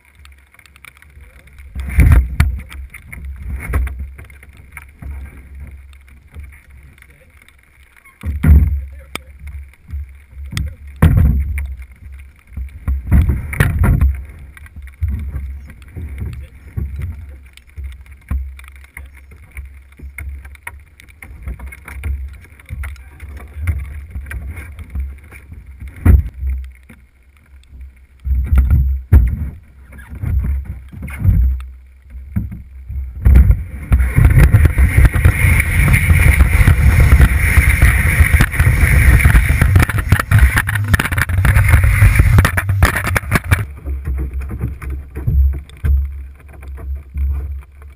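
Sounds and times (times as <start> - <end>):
canoe scraping over snow: 0.0 - 47.9
knocks on canoe hull: 8.2 - 8.8.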